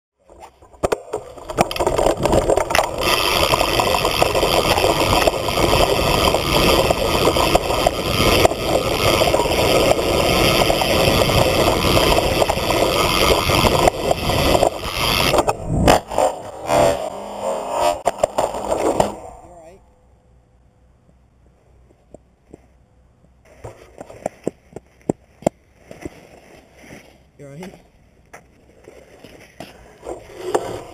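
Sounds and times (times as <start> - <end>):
tyre and wind noise: 0.2 - 17.1, 21.1 - 30.9
bike knocks and rattles: 0.3 - 16.0.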